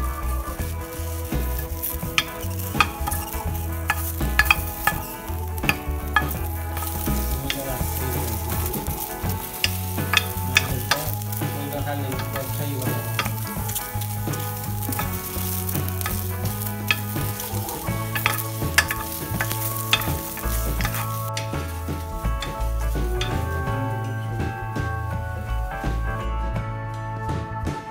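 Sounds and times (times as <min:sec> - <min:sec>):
vegetables sizzling in frying pan: 0:00.0 - 0:23.6
spoon knocking against pan: 0:01.6 - 0:11.3, 0:12.2 - 0:21.6.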